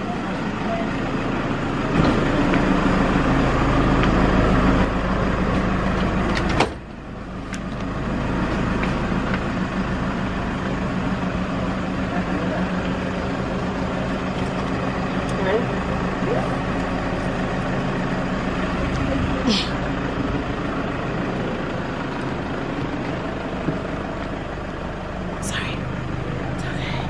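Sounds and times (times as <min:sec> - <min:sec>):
van engine idling: 0:00.0 - 0:27.0.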